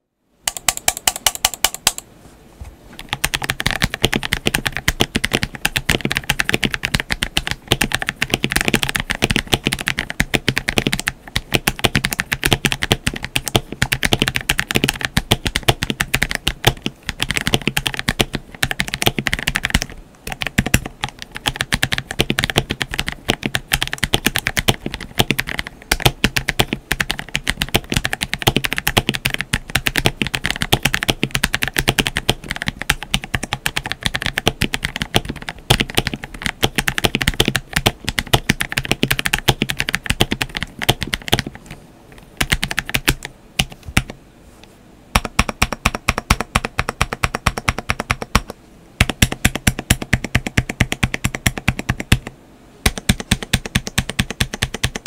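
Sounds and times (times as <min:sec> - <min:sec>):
mechanical keyboard keystrokes: 0:00.5 - 0:02.1, 0:03.0 - 0:44.2, 0:45.2 - 0:55.0.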